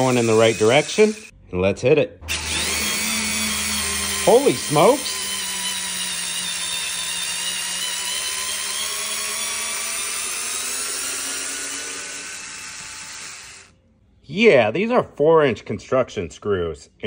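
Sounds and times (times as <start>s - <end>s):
electric screwdriver motor whine: 0.0s - 1.3s, 2.3s - 13.7s.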